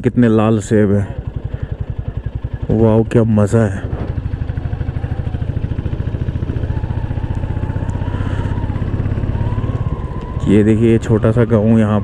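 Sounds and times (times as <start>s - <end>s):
motorcycle engine cruising: 0.0s - 12.0s
faint wavering whistle: 4.4s - 5.9s, 6.5s - 10.2s.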